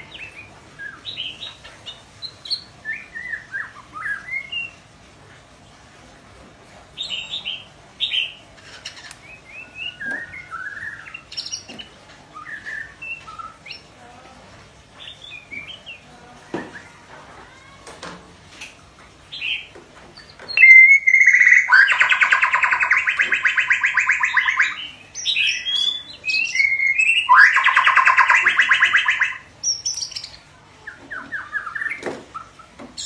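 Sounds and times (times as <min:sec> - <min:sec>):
bird chirps and warbles: 0:00.0 - 0:04.9, 0:06.9 - 0:14.1, 0:14.8 - 0:17.1, 0:19.2 - 0:33.0
rapid rattling bird trill: 0:19.3 - 0:33.0.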